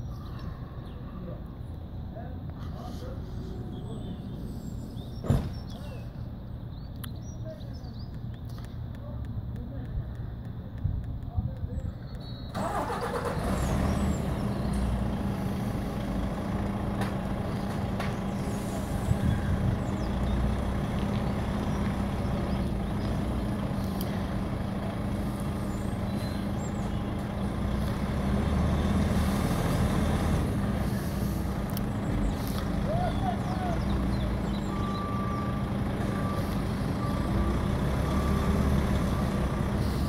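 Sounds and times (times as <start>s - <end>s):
lorry diesel engine humming: 12.5s - 40.0s.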